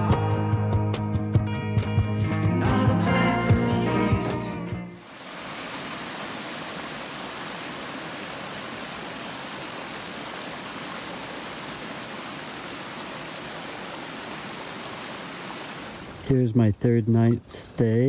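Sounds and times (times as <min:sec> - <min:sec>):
creek splashing over rocks: 0:05.0 - 0:16.4
small waterfall: 0:05.0 - 0:16.4.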